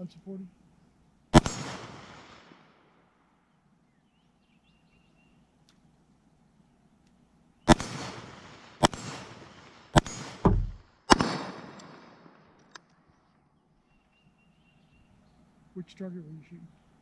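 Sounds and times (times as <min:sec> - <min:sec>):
rifle shots with echo: 0:01.3 - 0:03.0, 0:07.7 - 0:12.6
short low thump: 0:10.4 - 0:10.8.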